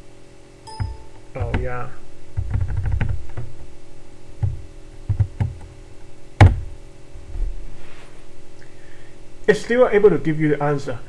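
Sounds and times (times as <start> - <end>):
computer keyboard keystrokes: 2.4 - 3.5.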